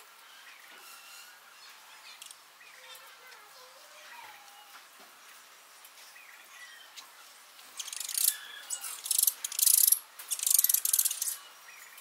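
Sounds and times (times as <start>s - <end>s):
high-pitched pulsing insect buzz: 7.8s - 11.4s
faint bird chirps: 7.8s - 12.0s.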